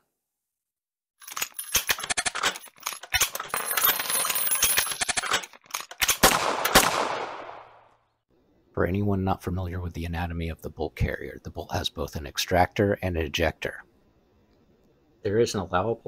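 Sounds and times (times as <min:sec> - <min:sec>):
gunshots and rapid fire: 0:06.1 - 0:07.8.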